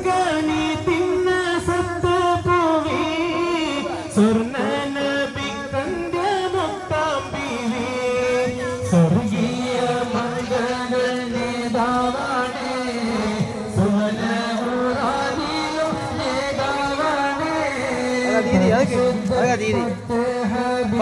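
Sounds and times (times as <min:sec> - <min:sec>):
person singing devotional song: 0:00.0 - 0:21.0.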